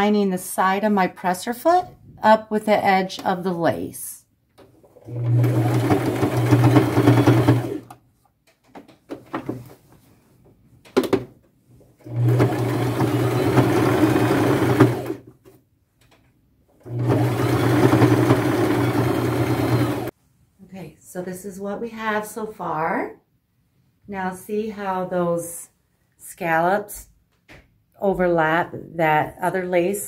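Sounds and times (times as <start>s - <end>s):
sewing machine stitching: 4.8s - 8.0s, 12.0s - 15.3s, 16.8s - 20.1s.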